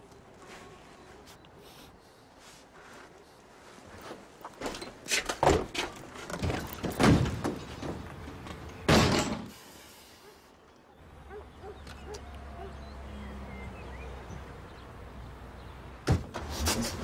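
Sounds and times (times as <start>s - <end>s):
caravan door knocks and bangs: 5.4s - 8.0s, 8.9s - 9.5s, 16.0s - 16.5s
caravan door slamming: 8.9s - 9.5s.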